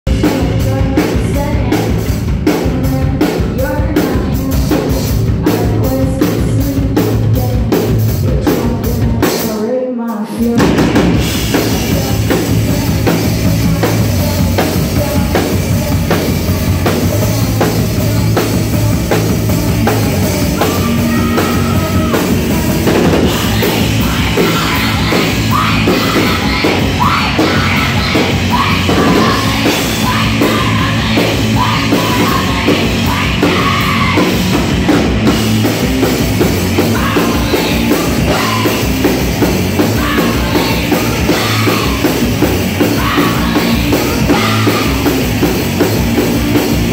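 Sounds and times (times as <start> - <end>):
drum kit beat: 0.1 - 9.6, 10.4 - 46.9
electric guitars: 10.5 - 46.9.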